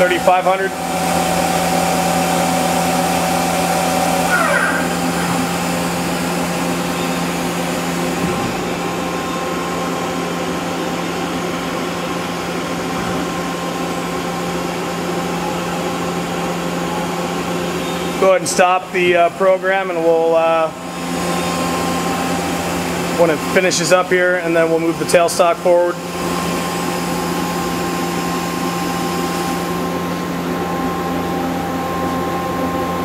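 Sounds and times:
falling machine whine: 0.0 - 11.1
lathe spindle hum and whine: 0.0 - 33.0.

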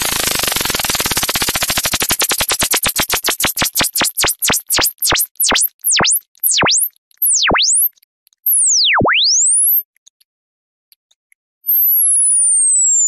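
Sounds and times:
electronic tone sweeping: 3.9 - 7.9, 8.5 - 9.8, 11.7 - 13.0.

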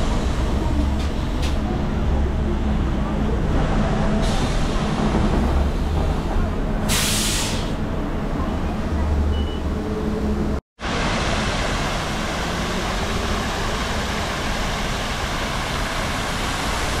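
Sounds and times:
bus diesel engine idling: 0.0 - 9.0.

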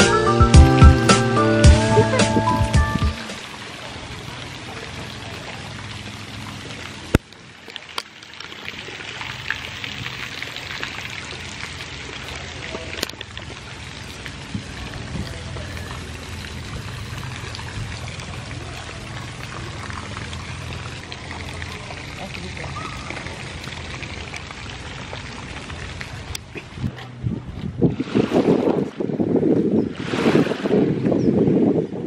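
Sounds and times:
fountain water splashing into pool: 1.7 - 27.0.

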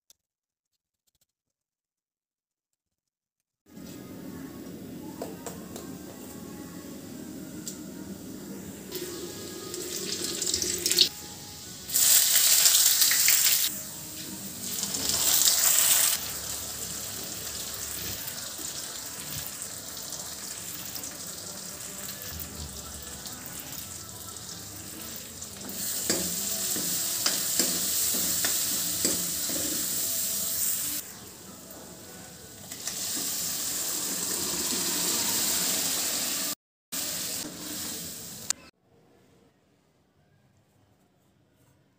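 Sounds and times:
spices sizzling in hot oil: 8.9 - 31.4, 32.6 - 38.6.

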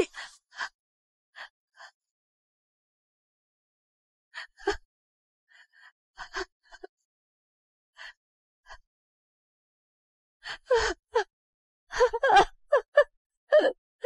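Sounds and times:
woman crying and sobbing: 11.9 - 13.8.

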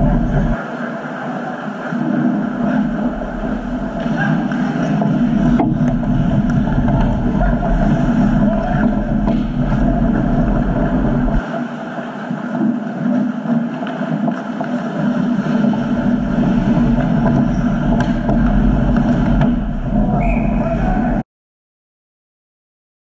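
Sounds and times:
low rumble on microphone: 0.0 - 0.6, 1.8 - 11.5, 14.2 - 21.2
ice hockey rink noise: 0.0 - 21.2.

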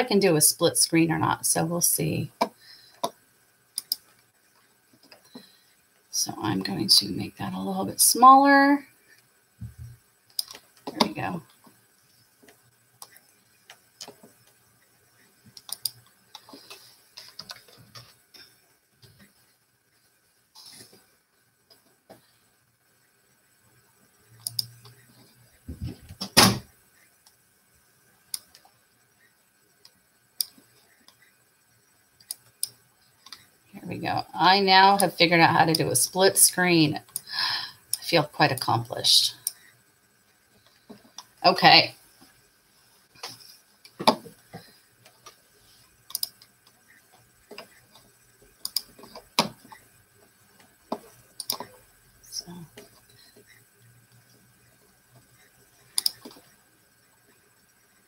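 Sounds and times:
computer clicks: 3.8 - 4.0, 15.6 - 16.0, 24.4 - 24.8, 46.1 - 46.5, 48.6 - 49.6, 51.4 - 51.7, 56.0 - 56.4.

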